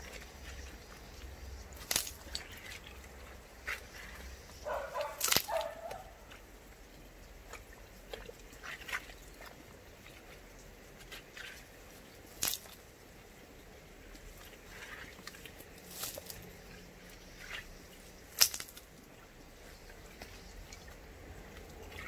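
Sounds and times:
hands scraping mud and stones: 14.5s - 16.5s, 17.2s - 18.9s.

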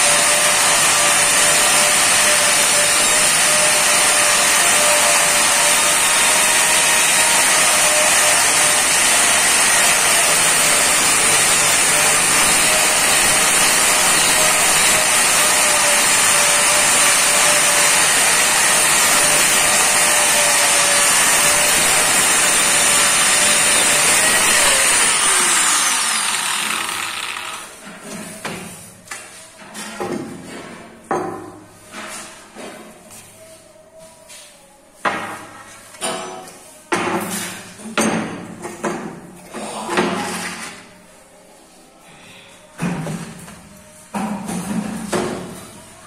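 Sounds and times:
angle grinder whining: 0.0s - 27.8s.

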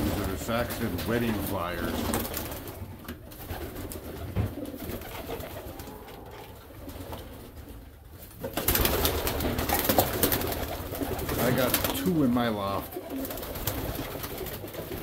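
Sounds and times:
pigeons cooing softly: 0.0s - 15.0s.

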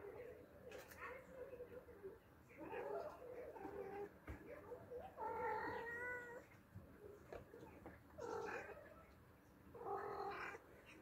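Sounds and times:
cat meowing: 5.2s - 6.5s, 8.2s - 9.0s, 9.8s - 10.6s.

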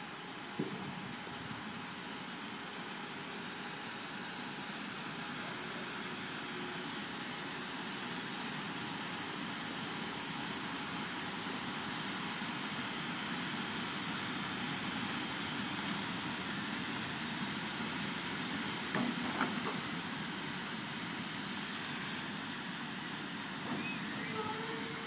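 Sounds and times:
train wheels rumbling on rails: 7.9s - 25.0s.

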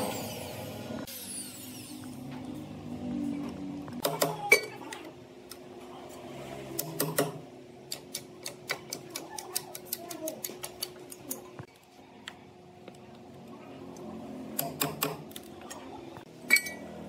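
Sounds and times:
regular clicks: 6.8s - 11.5s.

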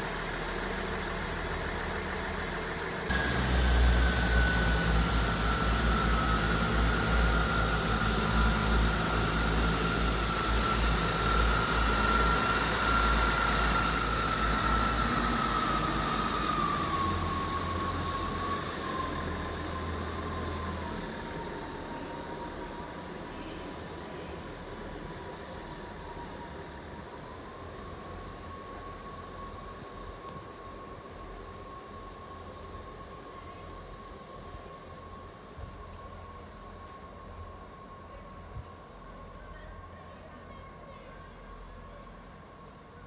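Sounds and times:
train engine rumble: 0.0s - 43.0s
whine falling in pitch: 0.1s - 18.5s.

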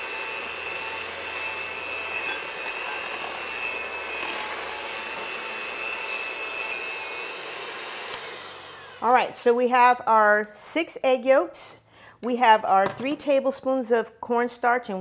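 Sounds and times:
electric hand mixer whining: 0.0s - 9.6s.

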